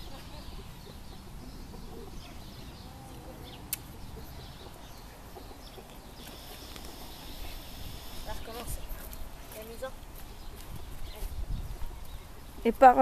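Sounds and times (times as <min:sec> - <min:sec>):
wind rumble on microphone: 0:10.4 - 0:12.8.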